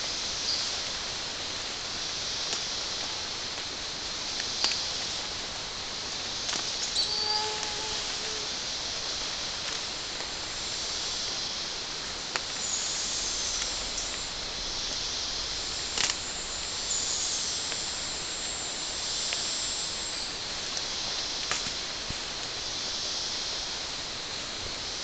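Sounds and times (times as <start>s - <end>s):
insects hissing: 0.0s - 25.0s
sharp snaps: 15.9s - 16.2s.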